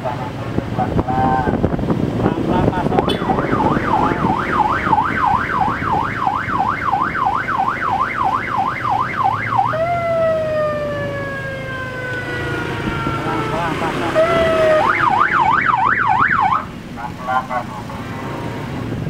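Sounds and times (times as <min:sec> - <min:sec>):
vehicle engine and road noise: 0:00.0 - 0:19.0
electronic siren: 0:03.0 - 0:16.7.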